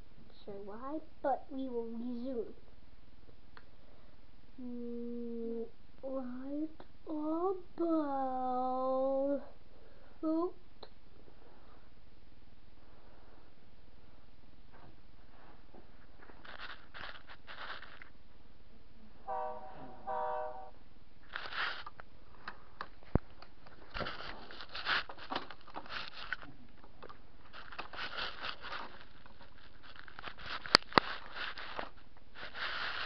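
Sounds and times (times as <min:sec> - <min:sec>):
scraping and rustling on carpet: 0:14.7 - 0:18.1, 0:21.3 - 0:22.0, 0:23.8 - 0:26.5, 0:27.5 - 0:33.0
toy locomotive horn honks: 0:19.3 - 0:20.8.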